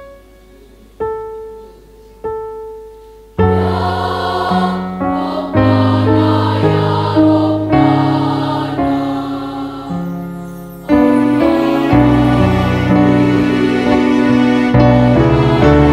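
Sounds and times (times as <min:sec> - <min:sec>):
piano chords: 0:00.0 - 0:15.9
girls' choir singing: 0:03.4 - 0:15.9.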